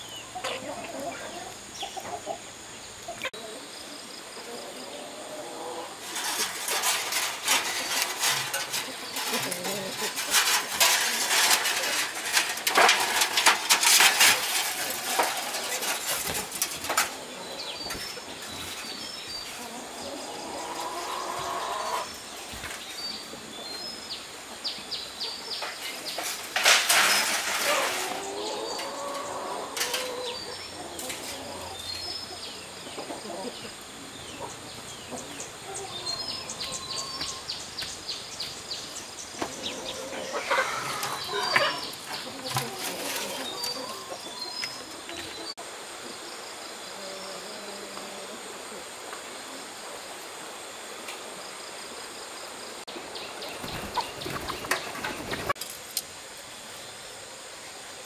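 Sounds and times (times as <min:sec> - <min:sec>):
chickens clucking: 0:00.0 - 0:50.3, 0:51.1 - 0:56.0
small birds chirping: 0:14.4 - 0:26.5, 0:27.1 - 0:45.6, 0:52.2 - 0:55.6.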